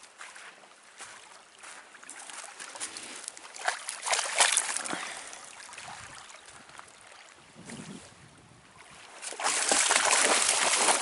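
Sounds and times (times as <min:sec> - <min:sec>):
dog splashing in water: 0:03.5 - 0:06.2, 0:09.2 - 0:11.0.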